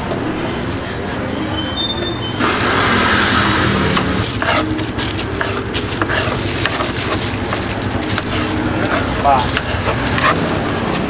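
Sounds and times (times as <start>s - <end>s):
street traffic: 0.0s - 11.0s
knife cutting on cutting board: 4.4s - 4.8s.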